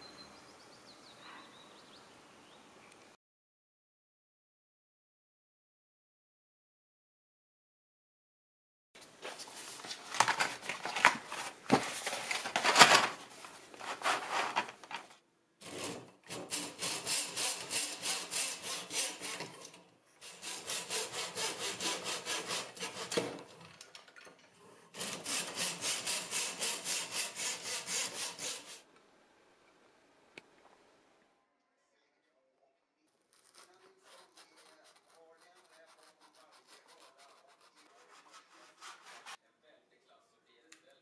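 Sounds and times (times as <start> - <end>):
pencils clattering and rubbing: 9.0 - 19.8
hand saw cutting wood: 15.6 - 23.7, 24.9 - 28.9, 33.4 - 39.4.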